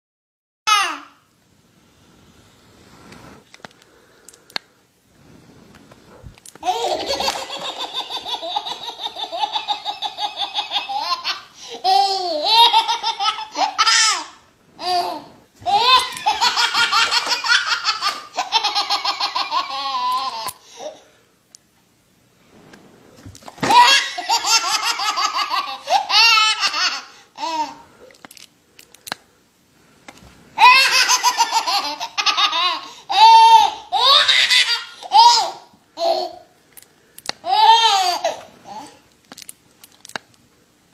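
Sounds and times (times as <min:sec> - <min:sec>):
baby laughing: 0:06.6 - 0:21.0, 0:23.6 - 0:27.8, 0:30.6 - 0:36.5, 0:37.4 - 0:39.0.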